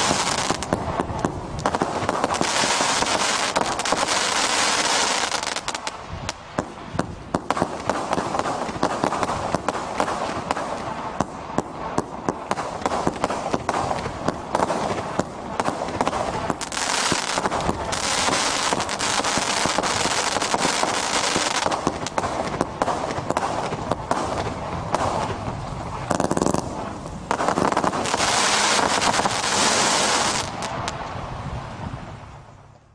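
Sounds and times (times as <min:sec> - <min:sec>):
firework cake firing shots: 0:06.6 - 0:30.9.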